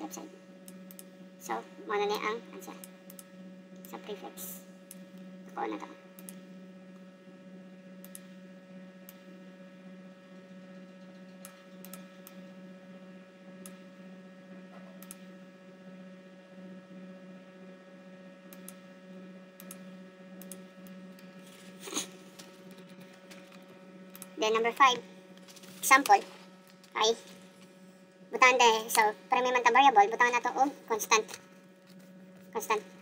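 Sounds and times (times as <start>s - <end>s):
electrical hum: 0.0s - 33.0s
computer mouse clicks: 6.2s - 6.4s, 8.0s - 8.3s, 11.0s - 12.4s, 14.9s - 15.3s, 18.5s - 18.8s, 19.6s - 21.3s, 22.4s - 24.3s.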